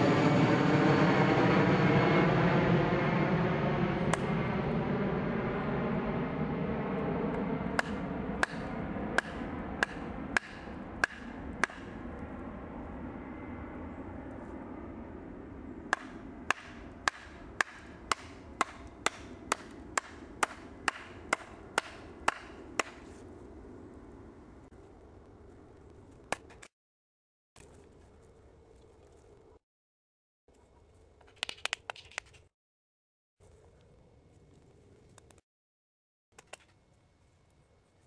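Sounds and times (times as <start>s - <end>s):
distant engine drone: 0.0s - 26.7s.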